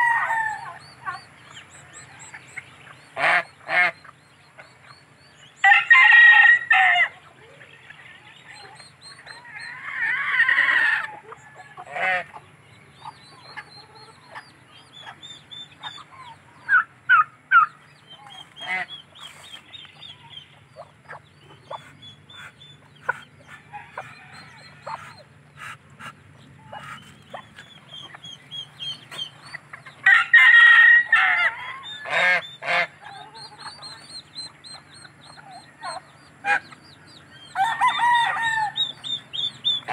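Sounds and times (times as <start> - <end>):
rooster crowing: 0.0 - 0.9, 5.6 - 7.2, 30.0 - 32.1, 37.5 - 39.2
geese honking: 0.0 - 4.6, 9.3 - 14.4, 15.0 - 39.9
chicks peeping: 0.0 - 6.1, 6.8 - 39.9.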